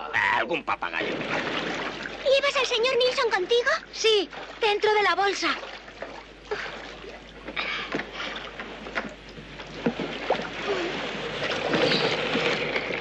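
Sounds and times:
water splashing around rowboats: 0:00.2 - 0:13.0
surf washing in shallows: 0:00.9 - 0:04.6, 0:08.4 - 0:13.0
boat knocks: 0:07.0 - 0:13.0.

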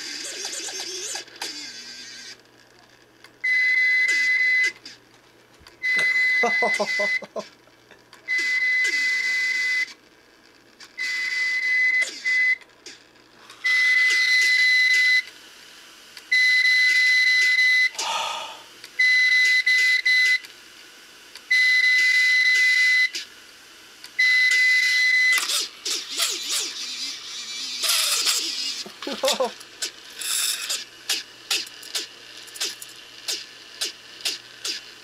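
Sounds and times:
hard drive beeping: 0:05.8 - 0:07.4.

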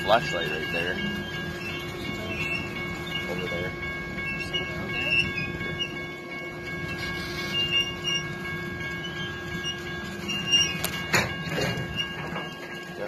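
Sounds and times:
diesel locomotive rumbling: 0:00.0 - 0:13.0
steady high tones: 0:00.0 - 0:13.0.

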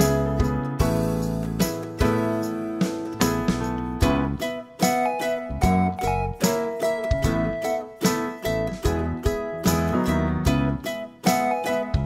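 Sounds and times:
bass line: 0:00.0 - 0:04.5, 0:05.5 - 0:06.4, 0:07.0 - 0:07.7, 0:08.4 - 0:11.0
plucked-string notes: 0:00.0 - 0:12.0
steady beat: 0:00.0 - 0:12.0.

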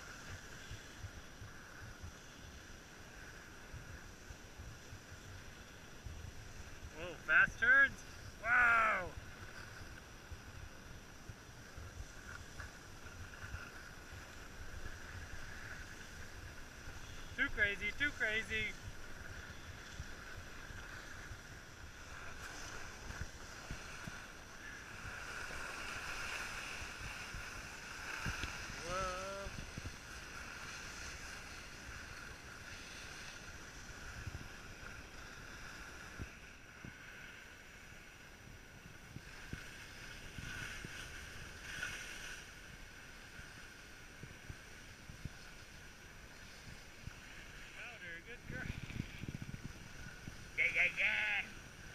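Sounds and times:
skis hissing over snow: 0:00.0 - 0:51.9
wind on microphone: 0:18.2 - 0:37.1, 0:38.0 - 0:51.9
wind buffeting microphone: 0:48.3 - 0:50.6.

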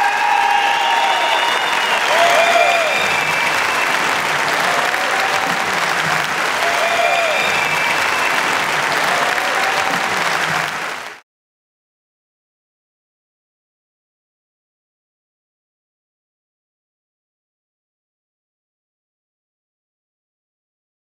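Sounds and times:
audience applauding: 0:00.0 - 0:11.2.

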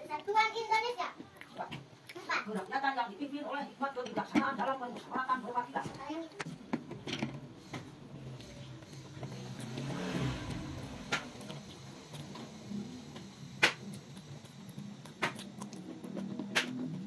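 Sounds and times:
chewing: 0:01.2 - 0:02.7, 0:11.1 - 0:17.0.

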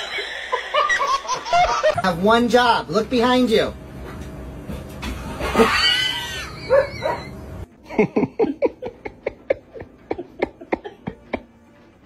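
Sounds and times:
dog whining: 0:05.5 - 0:07.4.

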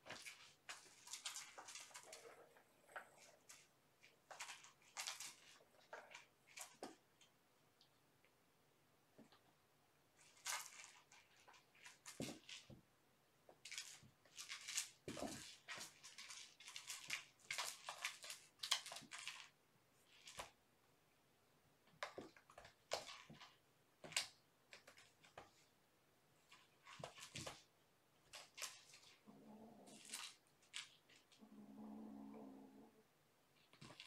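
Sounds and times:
kittens scratching and rustling: 0:00.0 - 0:07.4, 0:10.2 - 0:12.8, 0:13.6 - 0:20.6, 0:26.4 - 0:31.4, 0:33.6 - 0:34.0.

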